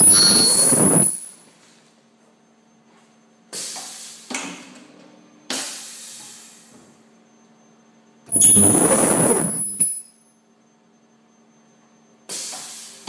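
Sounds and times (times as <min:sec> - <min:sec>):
high whine: 0:00.0 - 0:01.4, 0:08.3 - 0:10.2
ultrasonic welding machine bursts: 0:00.0 - 0:01.4, 0:08.3 - 0:10.0.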